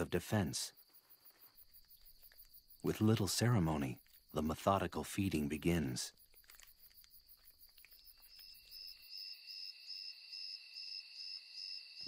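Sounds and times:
night insects trilling: 0.0 - 12.0
faint ticks: 0.8 - 2.8.

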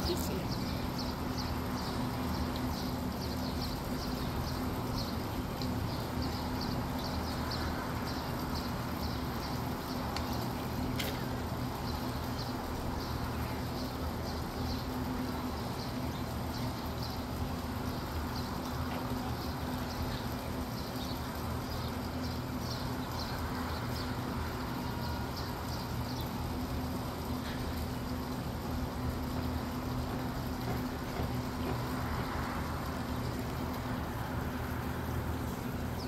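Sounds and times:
low mechanical hum: 0.0 - 36.0.

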